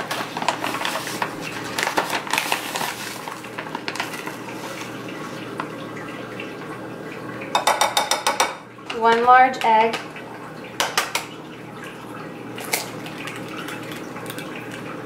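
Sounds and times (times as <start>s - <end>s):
plastic pouch crinkling: 0.0s - 4.5s.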